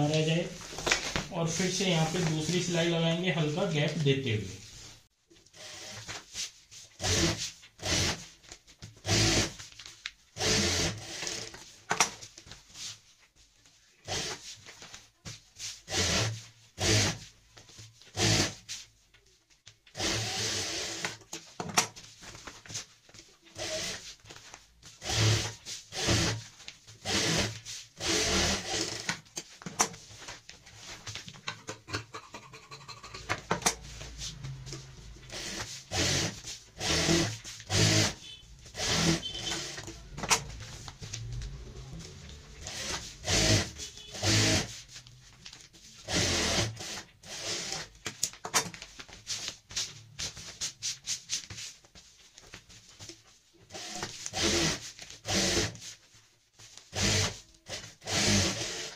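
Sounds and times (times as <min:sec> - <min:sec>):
fabric and plastic sack rustling: 0:39.9 - 0:42.6.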